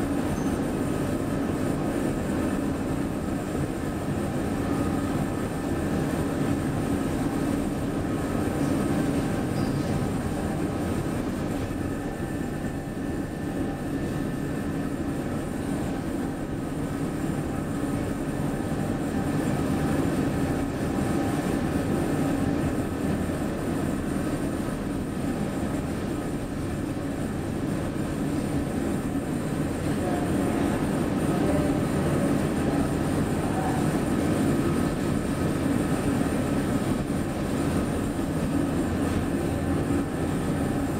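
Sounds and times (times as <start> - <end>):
faint whine tones: 0.0 - 1.4.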